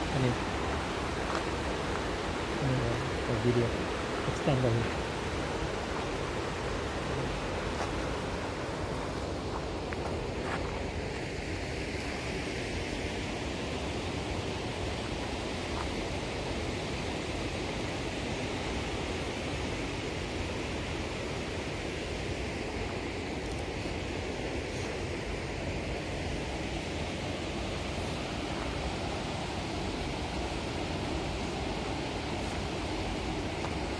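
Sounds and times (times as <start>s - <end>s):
water rushing over a spillway: 0.0s - 33.9s.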